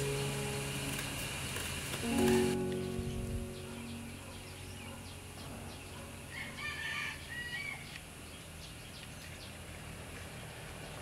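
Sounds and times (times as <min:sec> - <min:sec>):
chicken calling: 0:03.6 - 0:07.9.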